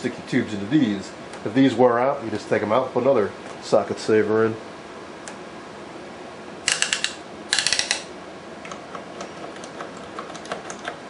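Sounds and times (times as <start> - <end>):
rotary switches clicking: 6.7 - 11.0.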